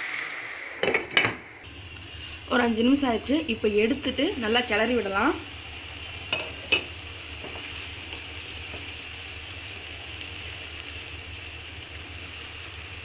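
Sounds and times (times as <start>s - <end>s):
spinach sizzling in a pan: 0.0s - 13.0s.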